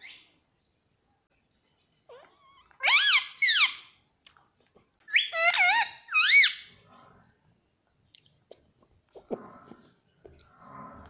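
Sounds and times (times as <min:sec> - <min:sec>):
parrot calling: 0:02.1 - 0:04.0, 0:05.1 - 0:06.8.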